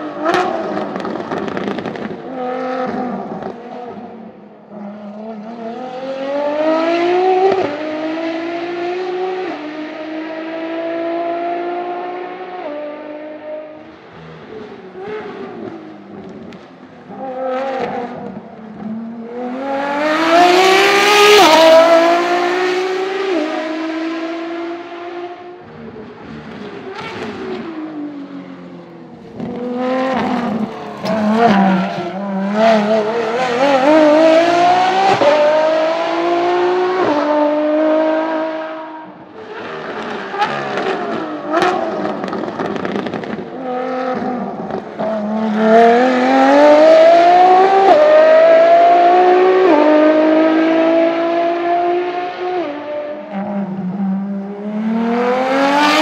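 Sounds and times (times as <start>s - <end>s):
car engine accelerating hard: 29.4s - 39.0s, 39.7s - 56.0s.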